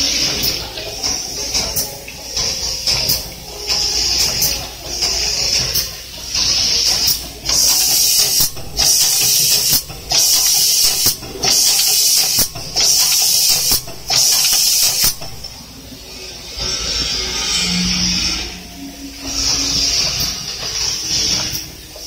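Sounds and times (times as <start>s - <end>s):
sharp machine clicks: 0.0s - 15.6s
compressed air hissing: 0.0s - 22.0s.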